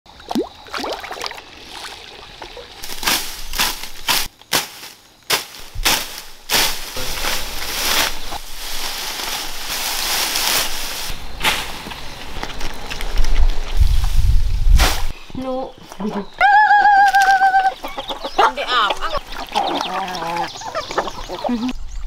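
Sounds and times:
pond water sloshing: 0.1 - 4.3, 18.4 - 21.8
vegetation rustling: 1.6 - 16.4
hoe chopping weeds: 2.8 - 12.1.

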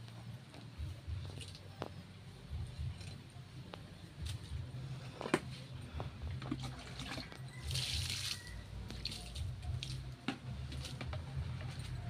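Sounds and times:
water splashing and dripping: 6.3 - 11.1.

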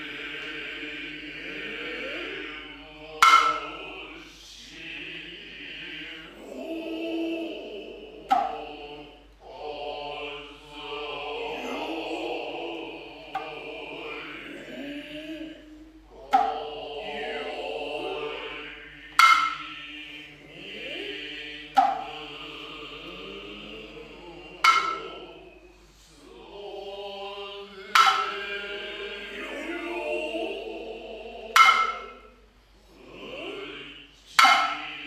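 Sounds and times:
hand drums struck sharply: 3.2 - 3.8, 24.6 - 25.2, 31.6 - 32.1.

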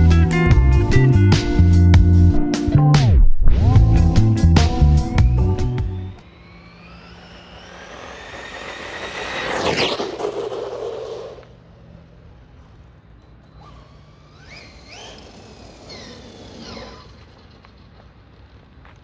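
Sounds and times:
tyre and air rush: 3.0 - 13.0
rc truck motor whine: 5.0 - 19.0.

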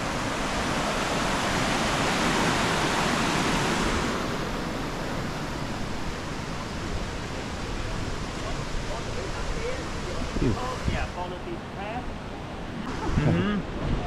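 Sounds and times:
waterfall roaring: 0.0 - 14.0.

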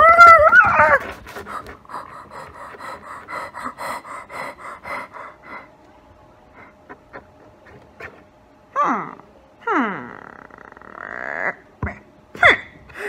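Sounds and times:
woman panting breathily: 1.0 - 5.8.

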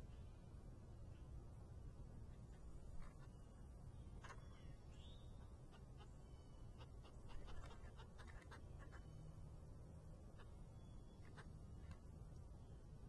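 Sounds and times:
low outdoor rumble: 0.0 - 13.0
faint bird chirps: 2.3 - 9.5, 10.2 - 13.0
woodpeckers pecking in seed: 6.8 - 9.1.

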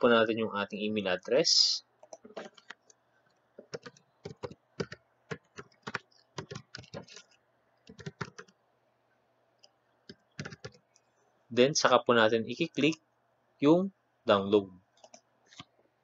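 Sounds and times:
computer keyboard typing: 3.6 - 8.6, 10.1 - 10.8.

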